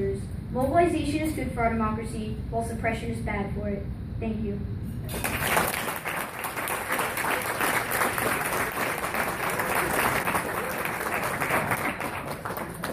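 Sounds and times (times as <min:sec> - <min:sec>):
audience applauding: 0:05.1 - 0:12.9.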